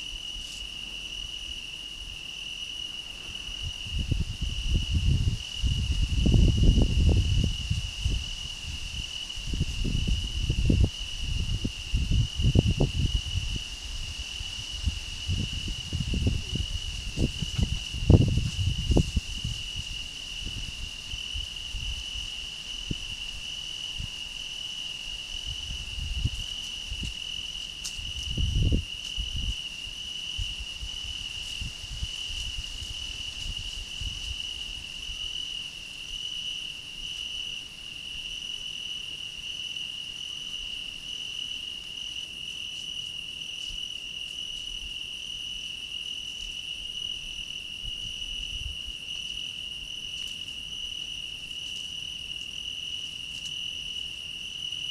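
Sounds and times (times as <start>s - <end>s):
cricket trilling: 0.0s - 54.9s.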